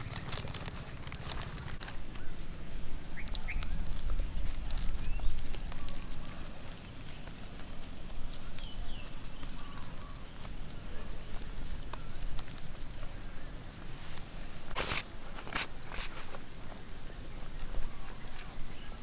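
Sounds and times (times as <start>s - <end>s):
low uneven rumble: 0.0s - 19.0s
bird chirps: 3.1s - 4.2s, 4.8s - 6.3s, 8.4s - 12.2s
hands kneading damp mash: 3.1s - 16.4s.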